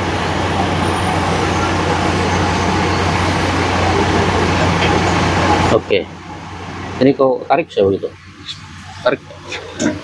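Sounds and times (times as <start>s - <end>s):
mechanical drone: 0.0s - 7.1s.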